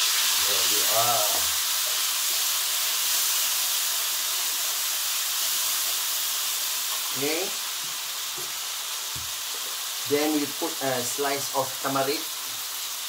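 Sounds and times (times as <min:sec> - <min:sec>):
paste sizzling in hot oil: 0:00.0 - 0:13.0.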